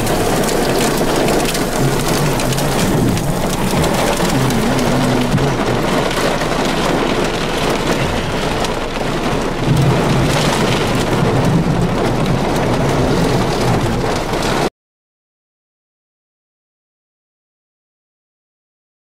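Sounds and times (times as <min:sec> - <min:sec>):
low drone: 0:00.0 - 0:10.3
heavy rain on car windshield: 0:00.0 - 0:14.7.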